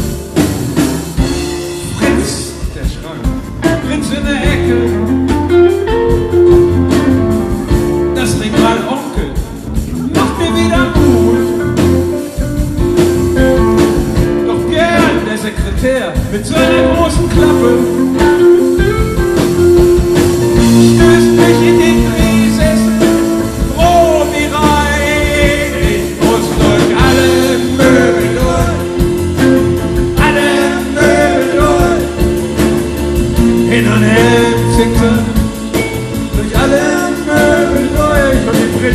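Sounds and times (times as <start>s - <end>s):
live rock band playing: 0.0s - 38.9s
man singing: 1.7s - 5.4s, 8.1s - 12.0s, 14.2s - 18.4s, 20.6s - 32.7s, 33.4s - 38.9s.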